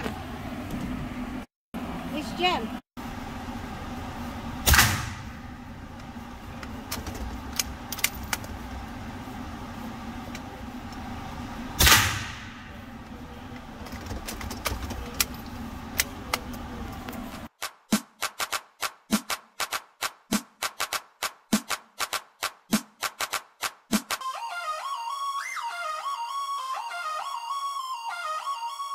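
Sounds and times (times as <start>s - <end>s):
steady low hum: 0.0s - 17.5s
rifle shots ringing indoors: 11.8s - 12.7s.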